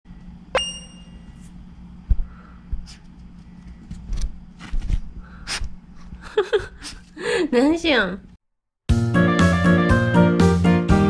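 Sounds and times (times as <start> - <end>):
steady low hum: 0.1 - 8.4
short ringing ping: 0.5 - 1.3.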